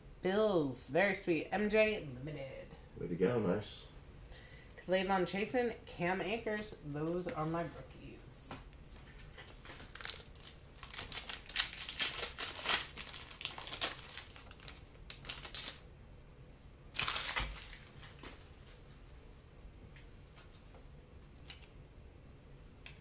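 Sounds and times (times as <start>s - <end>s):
foil wrapper crinkling and tearing: 9.6s - 15.9s, 16.9s - 18.2s.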